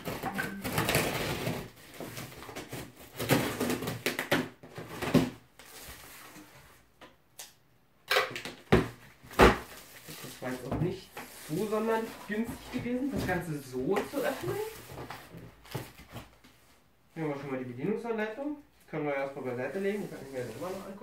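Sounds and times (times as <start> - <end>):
cardboard rustling: 9.5 - 16.6, 19.6 - 21.0.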